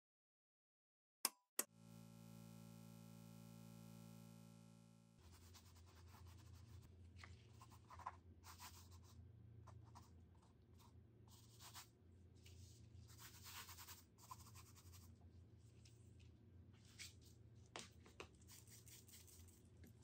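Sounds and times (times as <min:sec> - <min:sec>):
electronic tone: 0:01.6 - 0:05.2.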